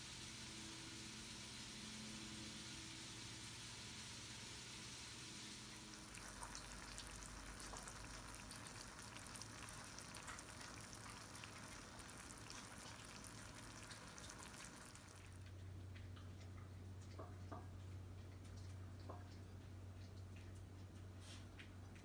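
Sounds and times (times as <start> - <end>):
meat and onions sizzling in skillet: 0.1 - 15.4.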